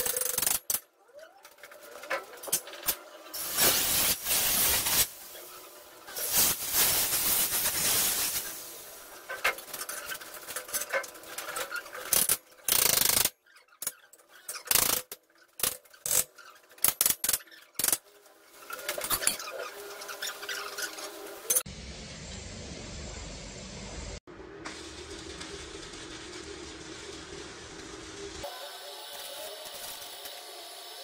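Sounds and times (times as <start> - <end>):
hiss burst: 3.4 - 9.1.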